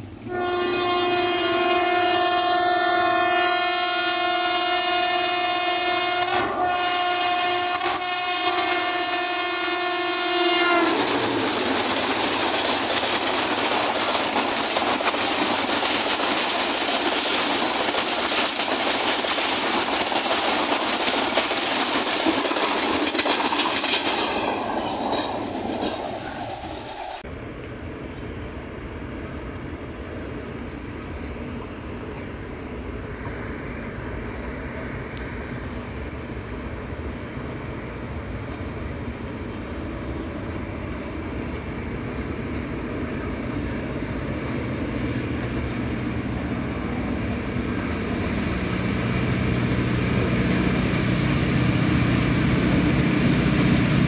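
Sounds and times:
locomotive horn: 0.2 - 11.0
train wheels clattering: 10.6 - 27.2.

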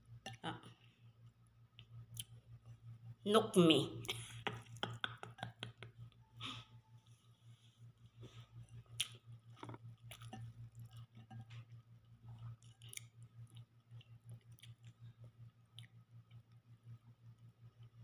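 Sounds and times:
steady low hum: 0.0 - 18.0
person chewing: 8.0 - 16.6.

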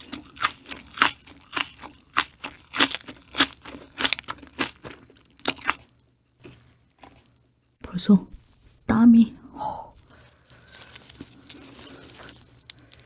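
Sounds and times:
chewing crunchy food: 0.0 - 7.4, 10.3 - 13.0.

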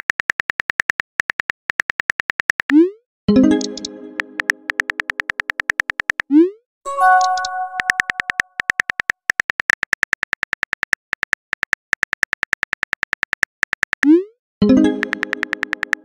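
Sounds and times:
phone keyboard typing clicks: 3.5 - 6.3, 6.9 - 14.1, 14.8 - 16.0.

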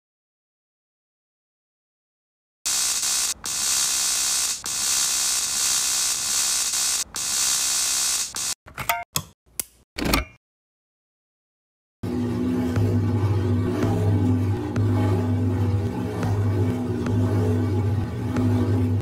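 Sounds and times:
electrical arcing hiss: 2.7 - 8.6
electrical crackling bursts: 2.7 - 8.6.

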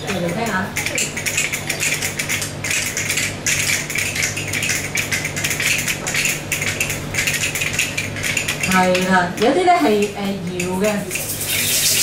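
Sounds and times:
clapper percussion clicking rattle: 0.1 - 9.6.

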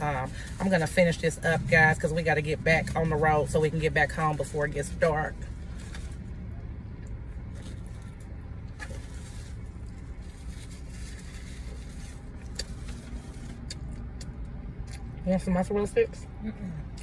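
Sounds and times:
idling engine cabin hum: 0.0 - 17.0
close-up chewing: 7.0 - 15.2.

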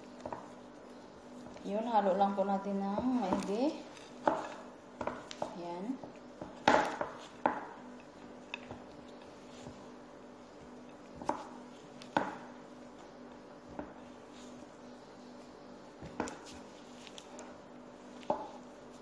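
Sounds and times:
spatula stirring thick dough: 0.0 - 19.0.

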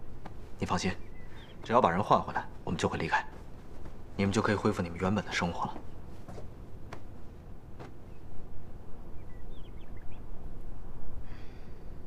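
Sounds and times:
faint high bird chirps: 0.6 - 2.5, 9.0 - 10.4
soft breath: 11.2 - 12.0.

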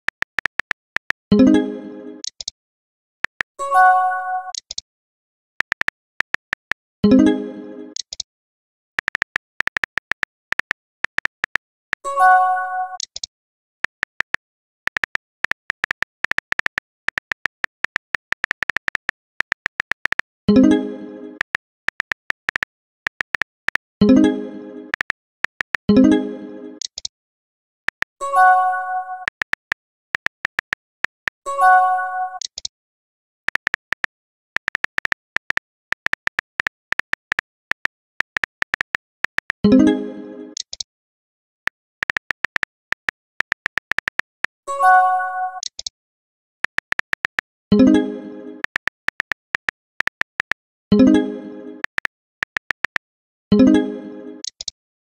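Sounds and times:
smartphone keyboard clicks: 0.0 - 1.3, 2.2 - 2.5, 3.2 - 3.5, 4.5 - 4.8, 5.6 - 6.8, 8.0 - 8.3, 9.0 - 11.8, 13.0 - 20.3, 21.4 - 23.9, 25.0 - 25.8, 26.8 - 27.1, 27.9 - 28.2, 29.2 - 31.4, 32.4 - 32.7, 33.5 - 39.6, 40.6 - 40.9, 41.7 - 44.6, 45.6 - 45.9, 46.6 - 47.5, 48.6 - 50.7, 51.8 - 53.1, 54.4 - 54.8.

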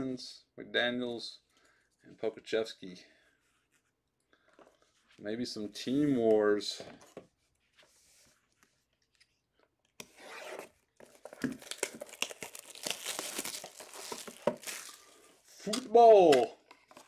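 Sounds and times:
cardboard box ripping: 10.5 - 15.0
packaging crinkling and tearing: 11.0 - 15.3.

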